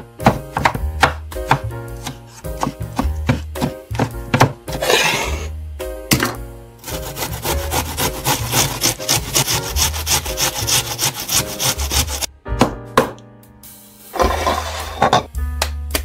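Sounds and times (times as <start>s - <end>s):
knife striking cutting board: 0.2s - 5.2s
onion grated on metal grater: 6.8s - 12.3s.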